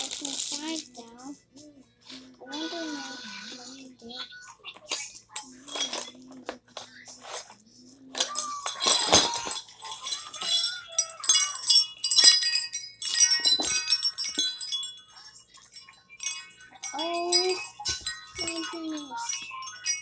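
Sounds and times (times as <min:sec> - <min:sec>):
metal wind chime jingling: 0:08.2 - 0:20.0.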